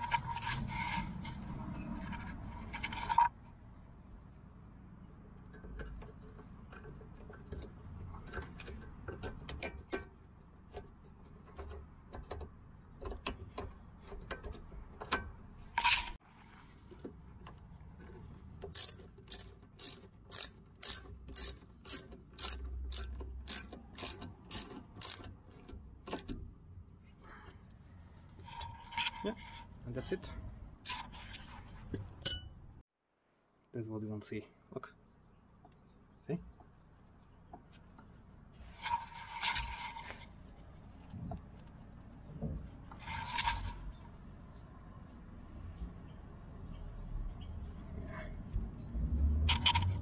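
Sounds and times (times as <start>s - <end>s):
ratchet wrench clicking: 18.7s - 25.3s, 26.1s - 26.3s
metal tools clinking: 18.8s - 25.3s.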